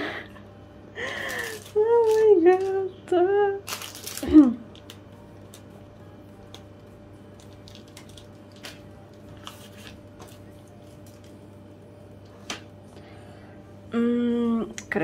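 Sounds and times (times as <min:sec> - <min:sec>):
steady low hum: 0:00.0 - 0:15.0
cellophane crinkling: 0:01.0 - 0:02.9, 0:03.5 - 0:11.4.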